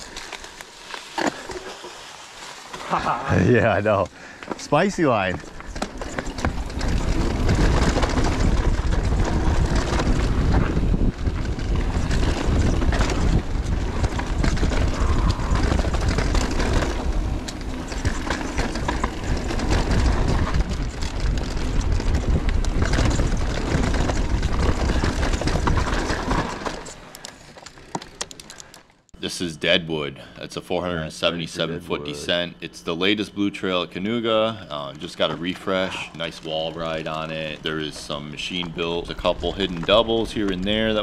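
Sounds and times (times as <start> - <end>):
bike knocking and rattling: 0.0 - 29.1, 35.1 - 41.0
bike tyre noise: 0.0 - 29.8, 33.0 - 41.0
wind buffeting microphone: 4.8 - 26.9.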